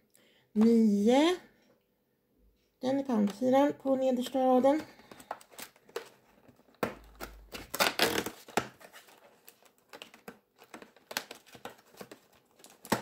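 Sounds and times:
cardboard being torn open: 0:05.2 - 0:13.0.

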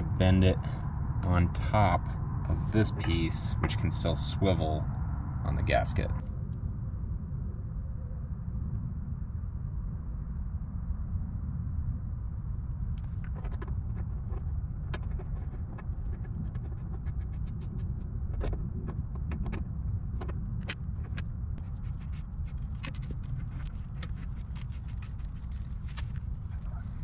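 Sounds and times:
low rumble: 0:00.0 - 0:27.0.

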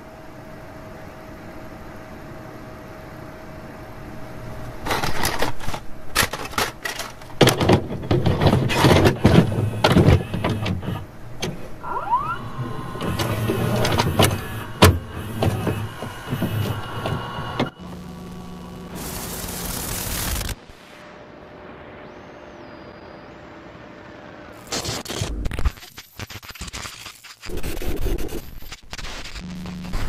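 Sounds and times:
steady hum and tape hiss: 0:00.0 - 0:30.0
short rising whine: 0:11.2 - 0:25.1.

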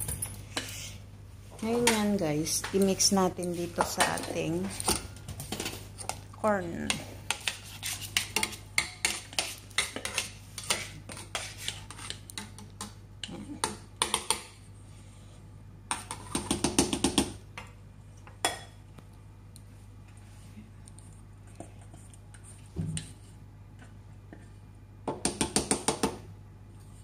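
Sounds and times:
spatula scraping metal bowls: 0:01.7 - 0:12.7.

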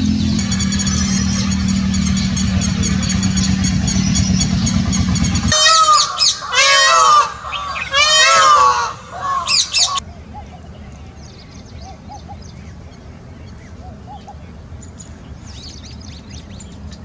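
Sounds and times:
peafowl honking calls: 0:00.0 - 0:10.6
low hum: 0:00.0 - 0:14.1.

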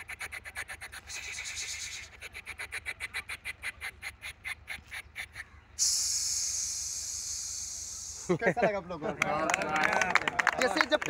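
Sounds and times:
man imitating train chugging: 0:00.0 - 0:04.4, 0:05.8 - 0:08.3
man making hissing sound: 0:00.0 - 0:04.4, 0:05.8 - 0:08.4.

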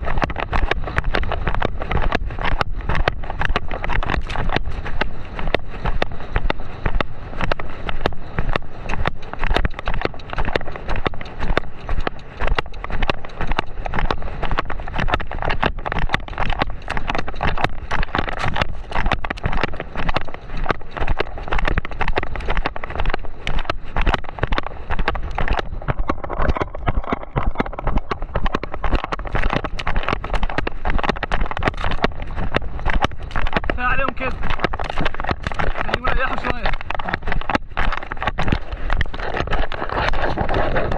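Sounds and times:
horse hoofbeats on sand: 0:00.0 - 0:40.9
wind on microphone: 0:00.0 - 0:40.9.

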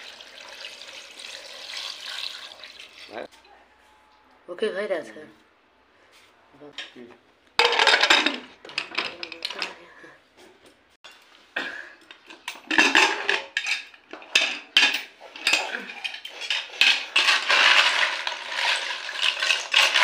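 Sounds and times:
metal spoon stirring snail shells: 0:15.5 - 0:20.0.

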